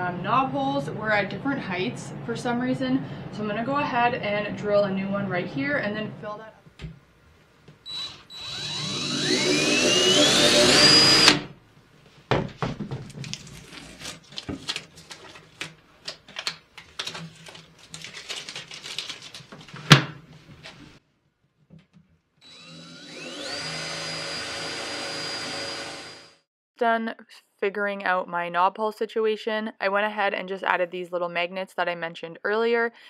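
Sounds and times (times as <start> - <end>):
cordless drill whining: 7.9 - 11.5, 22.4 - 26.4.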